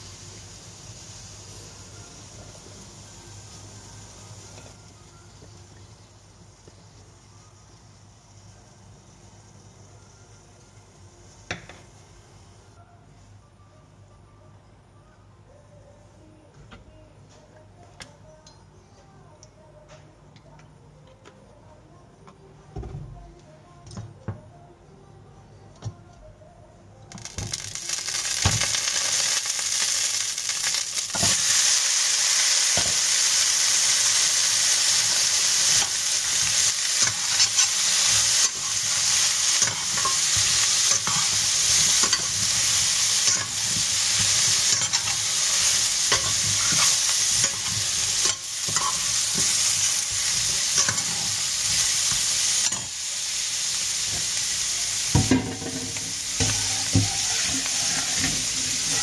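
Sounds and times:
food sizzling in hot oil: 0:00.0 - 0:09.6, 0:27.2 - 0:59.0
metal spatula scraping pan: 0:56.4 - 0:59.0.

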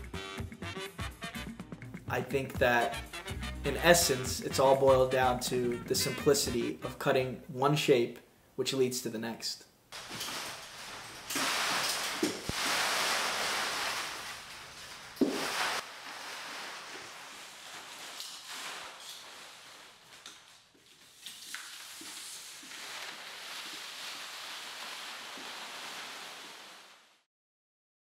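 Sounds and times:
broom sweeping paper scraps: 0:10.0 - 0:27.2.

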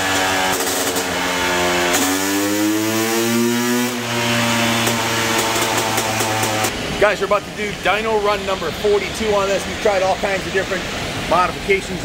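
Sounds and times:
two-stroke engine revving: 0:00.0 - 0:11.4.

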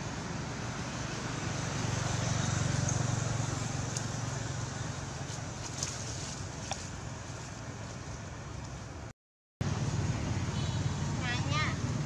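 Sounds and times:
motor vehicle passing: 0:00.0 - 0:08.6
outdoor background noise: 0:00.0 - 0:12.0.

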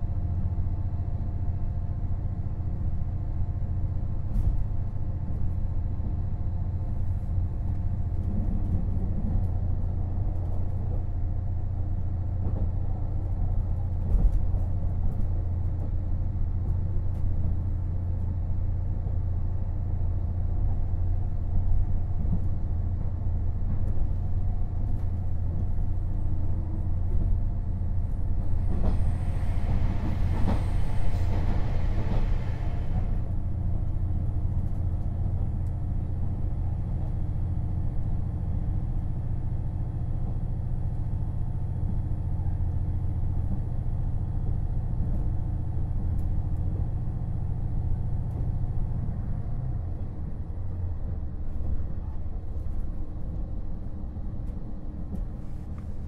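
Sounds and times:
wheel-on-rail rumble: 0:00.0 - 0:56.0.

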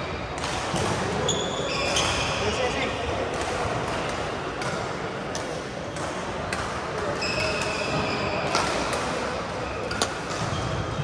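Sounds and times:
racket hitting shuttlecock: 0:00.3 - 0:01.3, 0:03.2 - 0:10.9
shoe squeak on court floor: 0:01.2 - 0:02.5, 0:07.2 - 0:08.6.

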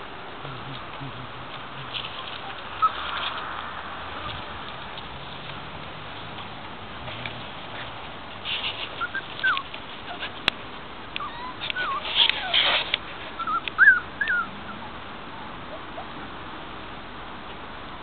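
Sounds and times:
puppies whimpering: 0:02.3 - 0:03.4, 0:08.8 - 0:10.4, 0:11.2 - 0:14.8.

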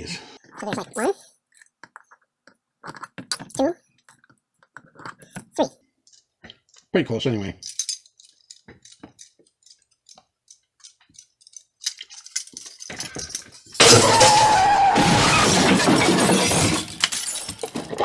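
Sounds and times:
glass shattering: 0:12.3 - 0:18.0.

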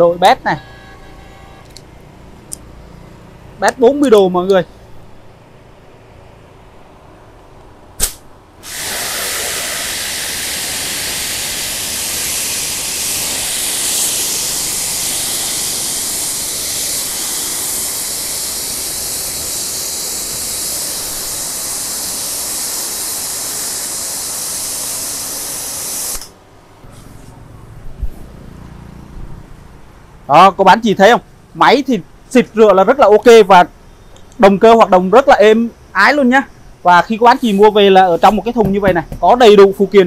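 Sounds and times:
sharp click: 0:07.6 - 0:08.3
pressure washer jet hissing: 0:08.0 - 0:26.4.

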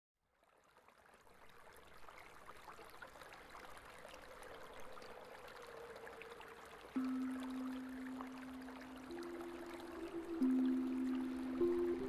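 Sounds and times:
water dripping: 0:03.6 - 0:12.0
faint steady hum: 0:04.1 - 0:12.0.

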